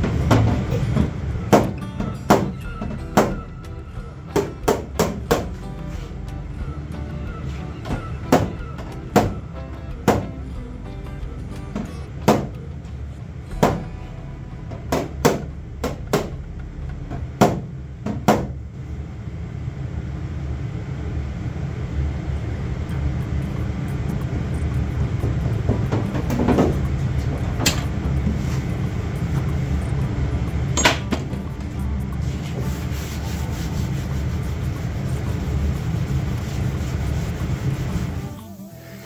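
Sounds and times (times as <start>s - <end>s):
sharp knocks: 11.8s - 12.6s, 17.4s - 18.6s
hand sanding car panel: 32.2s - 38.4s.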